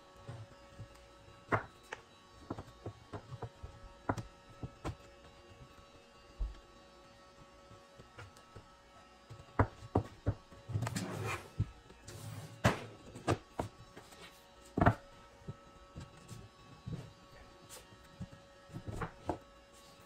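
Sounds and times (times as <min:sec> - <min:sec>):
wooden box scraping slide: 0:10.8 - 0:13.0.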